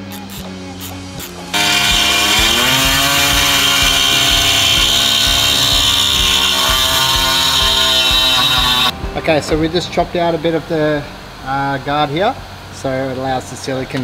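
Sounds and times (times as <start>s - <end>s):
electric power tool whining: 0.1s - 8.9s.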